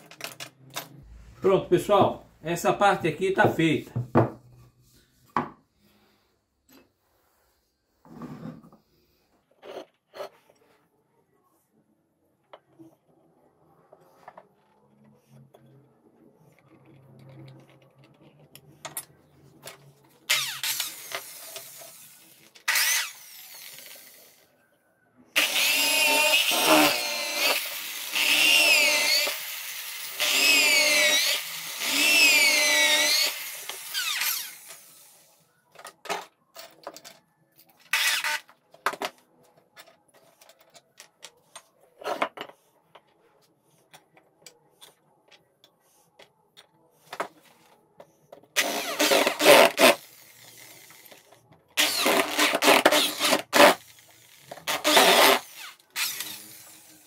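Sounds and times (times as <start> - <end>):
electric power tool whirring: 20.3 - 24.4, 25.4 - 35.2, 37.9 - 38.4, 48.6 - 57.0.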